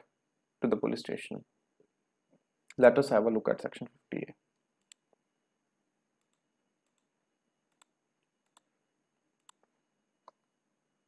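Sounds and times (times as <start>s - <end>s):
computer mouse clicks: 6.2s - 7.1s, 7.7s - 8.7s, 9.4s - 9.7s.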